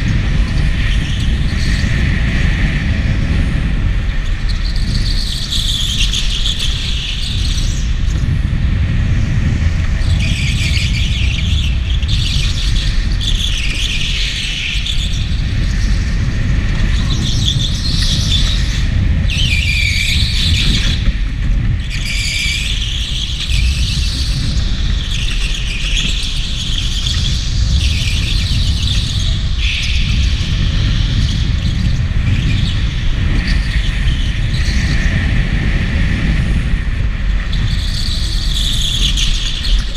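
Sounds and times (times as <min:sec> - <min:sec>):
steady low rumble: 0:00.0 - 0:39.9
go-kart tyres squealing: 0:37.4 - 0:39.9.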